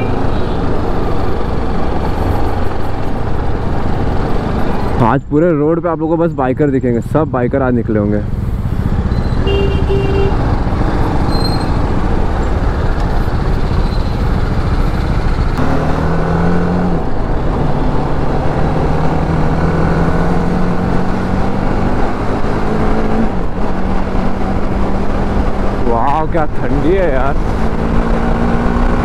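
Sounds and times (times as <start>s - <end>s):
motorcycle engine accelerating: 8.3s - 25.8s, 27.1s - 29.0s.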